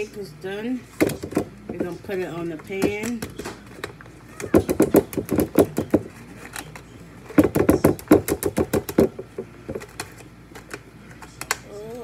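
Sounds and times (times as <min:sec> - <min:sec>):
hands tapping foil pan: 0:02.7 - 0:06.8, 0:07.4 - 0:10.2.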